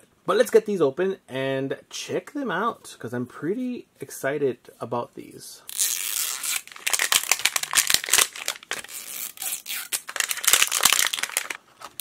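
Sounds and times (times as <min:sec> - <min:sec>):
paper wrapper tearing and crinkling: 0:05.7 - 0:12.0.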